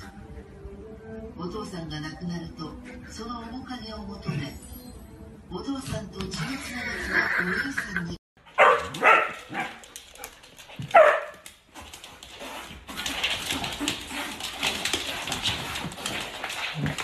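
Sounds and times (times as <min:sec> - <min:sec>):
dog barking: 0:08.5 - 0:09.9, 0:10.9 - 0:11.4.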